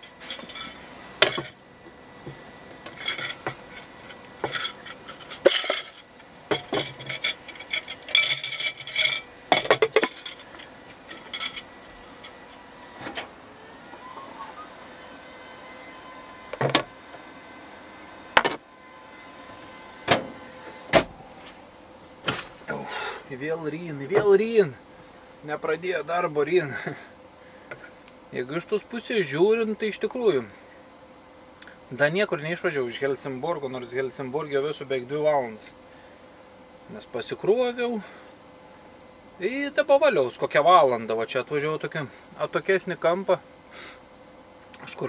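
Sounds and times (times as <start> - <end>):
faint steady hum: 0.0 - 45.0.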